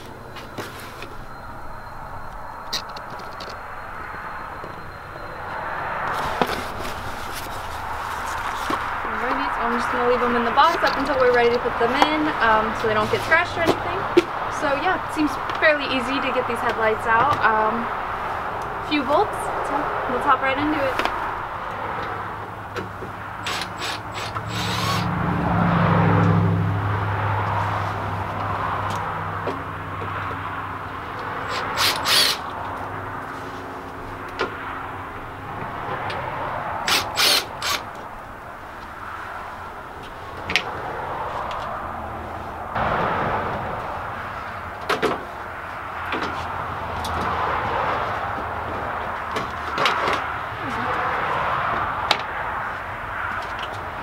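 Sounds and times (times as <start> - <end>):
power driver motor running: 23.4 - 25.1, 31.5 - 32.4, 36.8 - 37.9.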